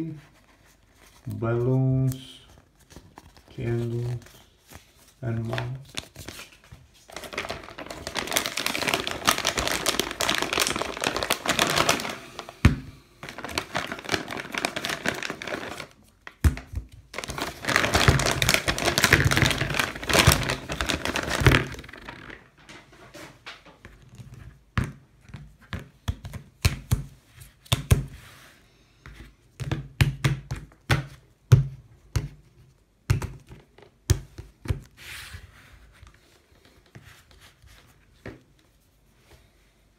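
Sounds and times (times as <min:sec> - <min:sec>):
plastic packaging crinkling: 0:02.2 - 0:22.8.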